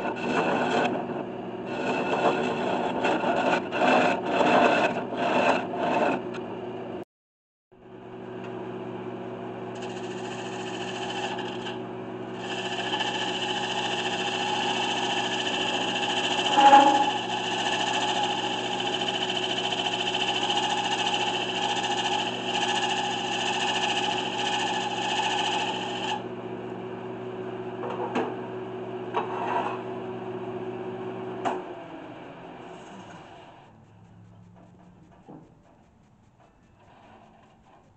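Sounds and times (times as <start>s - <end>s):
wood lathe motor humming: 0.0s - 1.0s, 1.6s - 6.2s, 9.8s - 26.3s.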